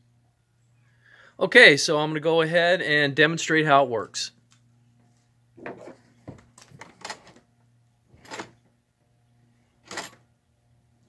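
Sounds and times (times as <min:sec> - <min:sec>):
cable scraping and knocking: 0:05.6 - 0:07.4.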